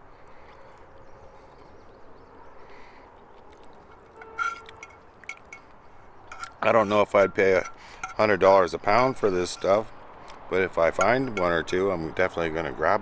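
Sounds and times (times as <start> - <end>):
fork scraping frying pan: 4.0 - 5.6.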